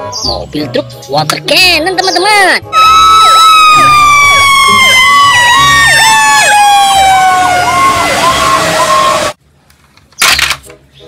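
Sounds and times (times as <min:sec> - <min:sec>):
siren falling in pitch: 0:02.7 - 0:09.4
whooping siren: 0:02.7 - 0:09.4.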